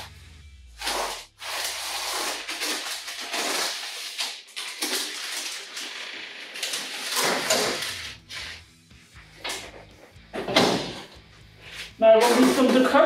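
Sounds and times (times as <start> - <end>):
scraping and handling noises: 9.5 - 13.0.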